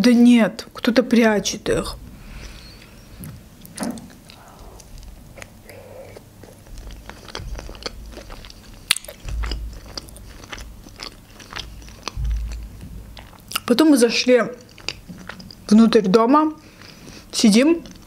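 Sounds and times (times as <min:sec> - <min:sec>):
wet chewing and mouth clicks: 0:02.4 - 0:13.9, 0:14.5 - 0:16.0, 0:16.8 - 0:18.0.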